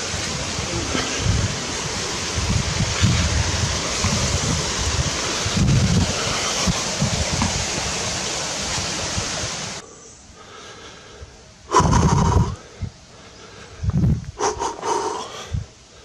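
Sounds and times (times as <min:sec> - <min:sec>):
mountain stream rushing: 0:00.0 - 0:09.8
breath-like puff: 0:11.7 - 0:12.6.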